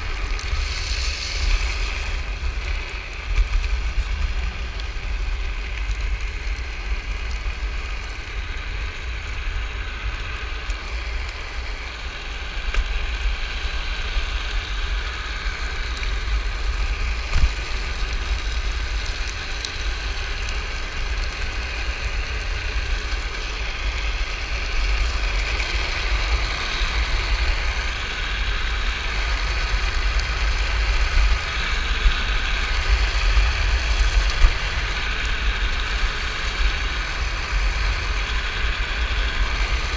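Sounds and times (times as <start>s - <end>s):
wheels sliding on asphalt: 0.0s - 39.9s.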